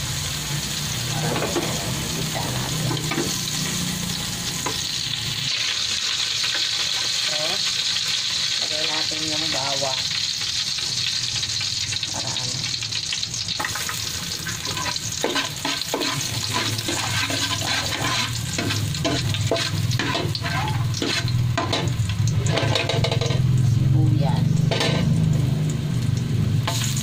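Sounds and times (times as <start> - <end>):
ginger sizzling in oil: 0.0 - 27.0
metal spatula scraping pot: 14.4 - 23.5.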